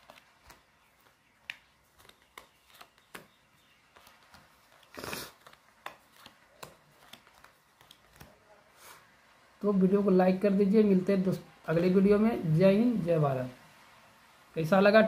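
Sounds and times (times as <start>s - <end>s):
cards rustling: 0.0s - 8.8s.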